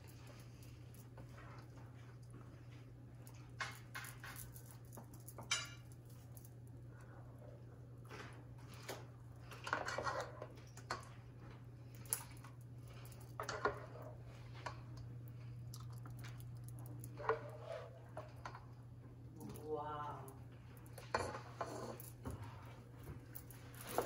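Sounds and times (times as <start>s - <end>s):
steady low hum: 0.0s - 24.0s
spoon scraping a pot: 9.6s - 10.5s, 17.2s - 18.6s.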